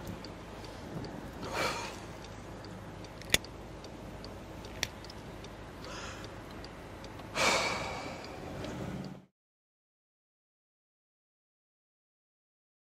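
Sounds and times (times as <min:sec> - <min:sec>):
steady low hum: 0:00.0 - 0:09.3
man exhaling heavily: 0:01.4 - 0:02.1, 0:05.9 - 0:06.2, 0:07.4 - 0:08.3
sharp click: 0:03.1 - 0:03.5.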